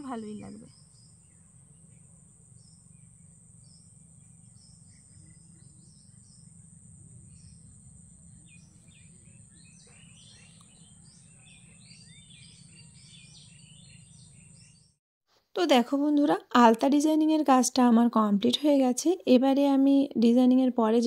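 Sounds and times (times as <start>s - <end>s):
bird chirps: 8.3s - 15.0s.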